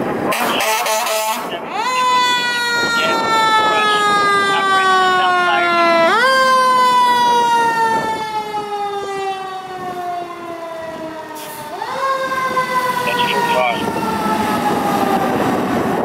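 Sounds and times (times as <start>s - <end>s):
fire engine siren wailing: 0.0s - 16.0s.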